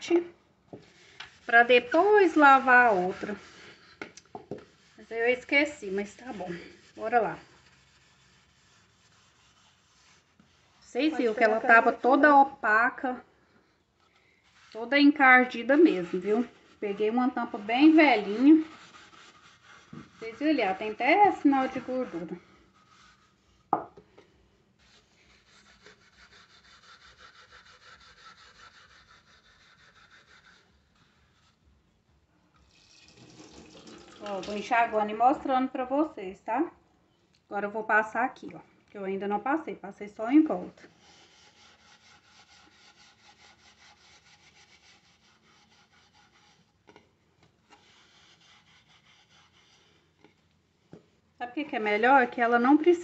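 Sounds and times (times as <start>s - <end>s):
sponge scrubbing metal lid: 0.8s - 12.6s, 14.4s - 23.7s.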